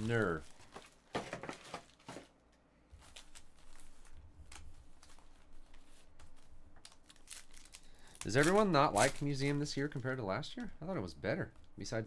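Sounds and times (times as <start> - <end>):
foil wrappers crinkling: 2.9 - 10.7.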